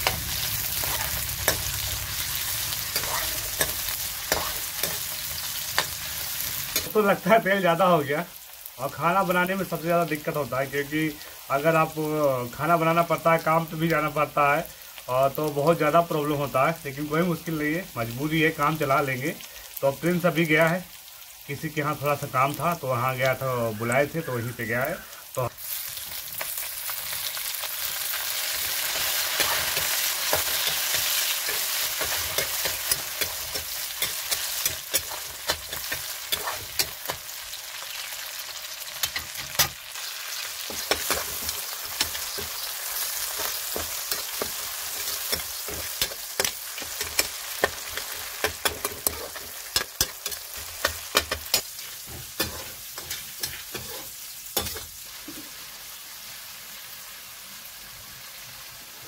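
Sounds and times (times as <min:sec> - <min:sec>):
food sizzling in oil: 0:00.0 - 0:59.0
ladle scraping and clicking on pan: 0:45.3 - 0:54.8.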